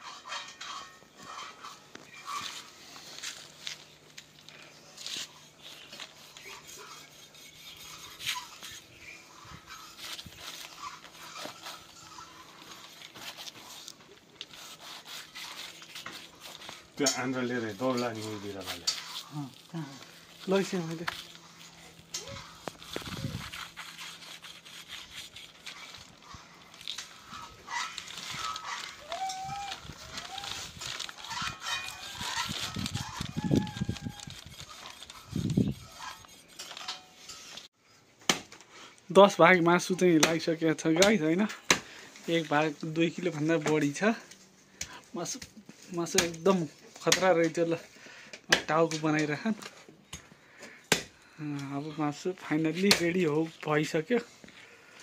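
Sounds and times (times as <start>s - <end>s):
knife cutting through carcass: 5.0s - 8.9s, 9.6s - 36.8s
animal cries: 6.2s - 13.0s, 21.3s - 24.2s, 25.7s - 36.4s.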